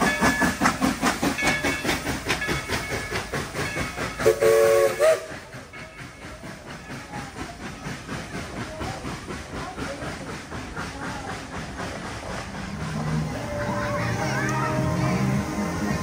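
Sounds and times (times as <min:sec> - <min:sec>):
locomotive hissing steam: 0:00.0 - 0:16.0
steam whistle toot: 0:04.2 - 0:05.4.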